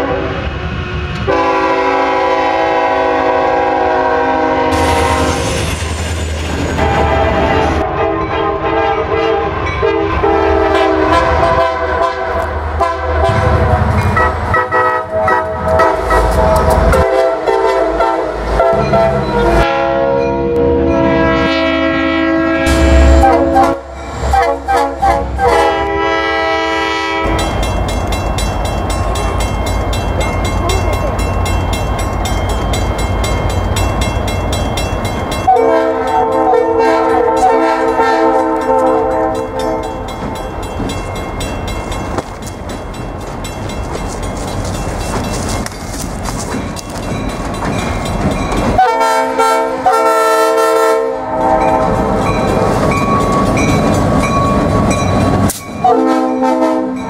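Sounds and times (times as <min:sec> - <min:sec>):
locomotive air horn chords: 0:00.0 - 0:00.4, 0:01.2 - 0:05.6, 0:06.8 - 0:27.4, 0:35.5 - 0:40.1, 0:48.8 - 0:52.3, 0:55.8 - 0:57.0
passing train rumble and clatter: 0:00.0 - 0:57.0.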